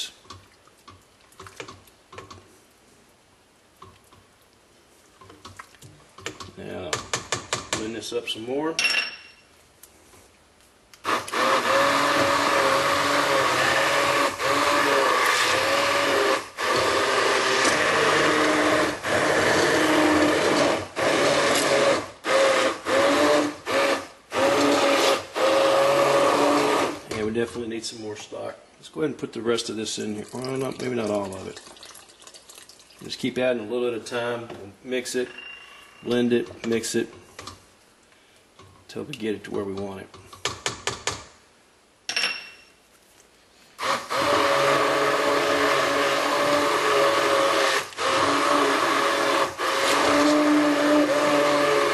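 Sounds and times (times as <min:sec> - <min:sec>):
immersion blender motor whirring: 0:11.0 - 0:27.1, 0:43.8 - 0:51.9.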